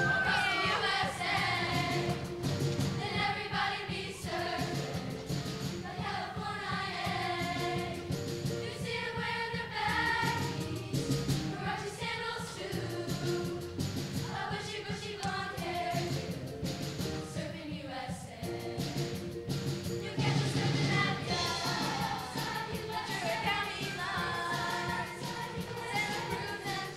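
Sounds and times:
choir singing: 0.0 - 5.2, 5.8 - 16.3, 17.3 - 19.2, 20.0 - 26.9
musical accompaniment with beat: 0.0 - 26.9.

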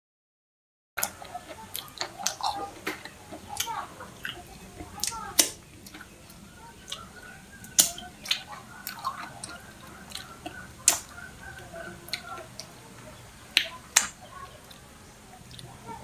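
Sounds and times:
mouth sucking fingers: 1.0 - 12.8
lip smacking while eating: 1.0 - 15.8.

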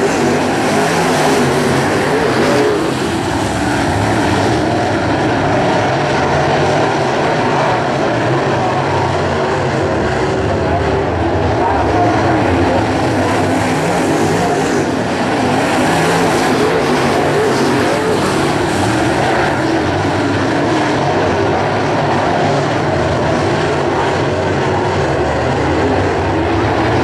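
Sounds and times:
race car engines droning: 0.0 - 27.0.

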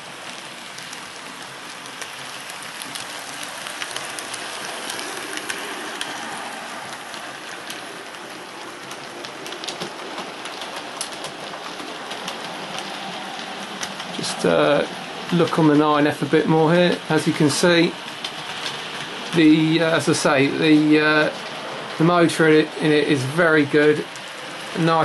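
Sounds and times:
model train motors whirring: 0.0 - 15.4
wheels clicking over rail joints: 0.0 - 25.0.

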